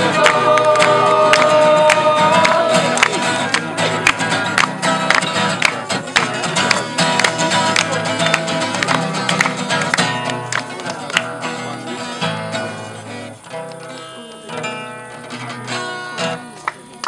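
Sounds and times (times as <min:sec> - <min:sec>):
acoustic guitars strummed: 0:00.0 - 0:17.0.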